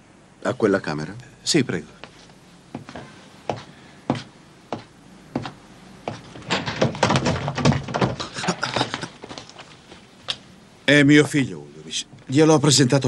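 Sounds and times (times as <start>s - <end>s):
footsteps: 2.0s - 10.4s
door opening with clatter: 6.1s - 9.5s.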